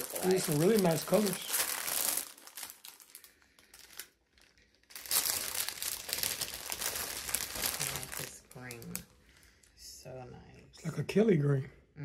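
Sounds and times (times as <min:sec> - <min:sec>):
plastic bag crinkling: 0:00.0 - 0:09.1.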